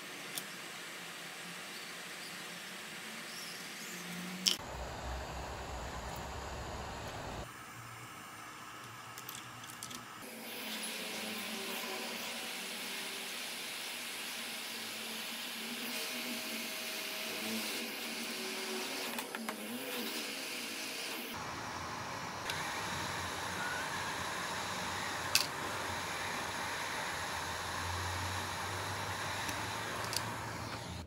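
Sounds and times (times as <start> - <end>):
hot air gun blowing: 20.9 - 31.0.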